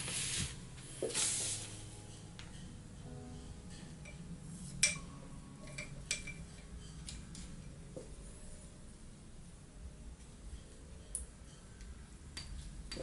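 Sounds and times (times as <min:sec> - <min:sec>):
hand sliding over paper: 0:00.0 - 0:01.8.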